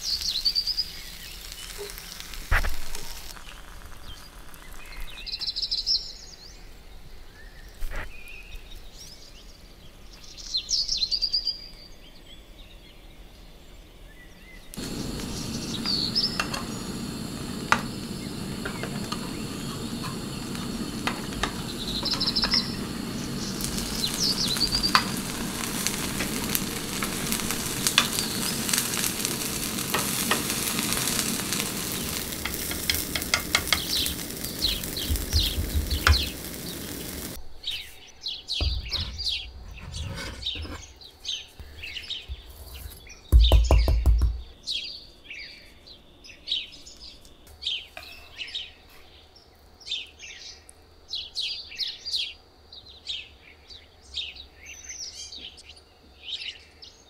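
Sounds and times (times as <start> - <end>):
food sizzling in a pan: 0.0 - 5.4, 14.8 - 37.4.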